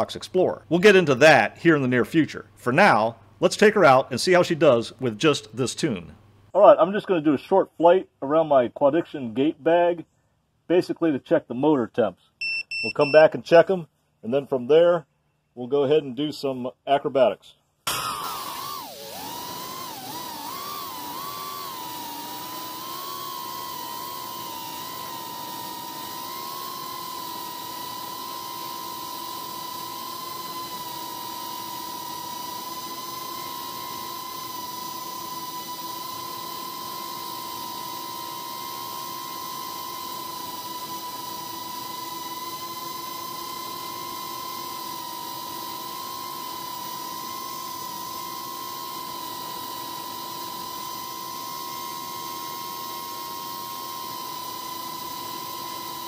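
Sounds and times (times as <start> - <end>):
quadcopter propellers whining: 17.9 - 56.0.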